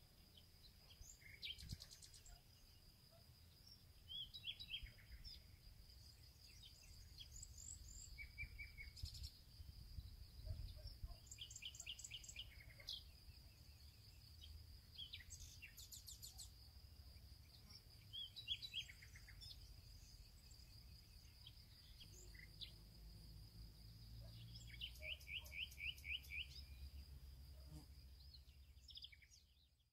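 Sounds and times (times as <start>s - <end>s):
small birds singing: 0.0s - 29.9s
bird trill: 24.5s - 26.7s.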